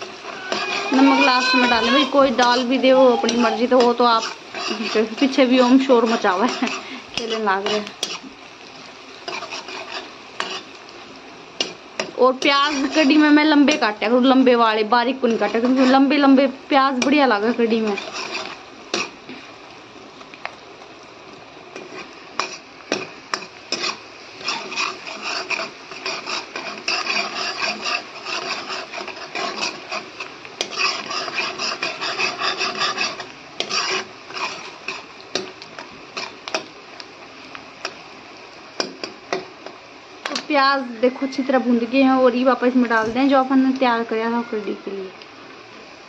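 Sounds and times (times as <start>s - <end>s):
metal ladle scraping a pan: 0.0s - 10.9s, 11.6s - 14.0s, 15.2s - 16.2s, 16.9s - 19.4s, 21.8s - 36.7s
onions frying in oil: 0.0s - 46.0s.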